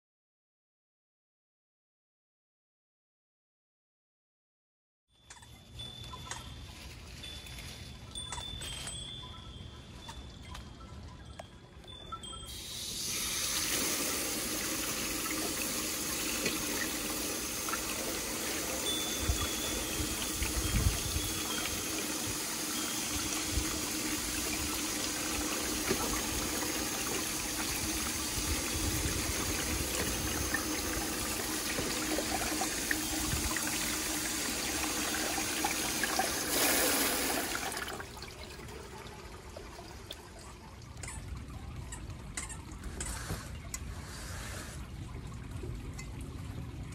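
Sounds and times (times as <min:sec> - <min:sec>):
water splashing into metal colander: 0:12.5 - 0:40.3.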